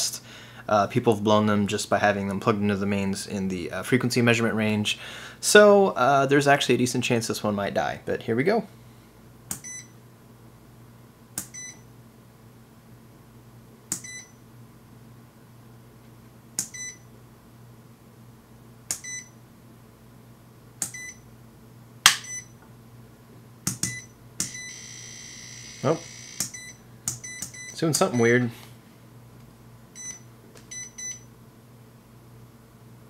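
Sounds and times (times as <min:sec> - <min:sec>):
multimeter short high beep: 0:22.2 - 0:22.5.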